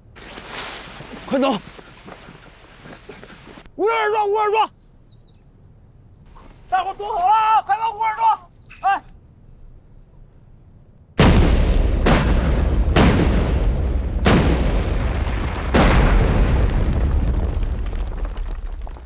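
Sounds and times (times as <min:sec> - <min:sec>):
explosive blasts: 0:11.2 - 0:19.0.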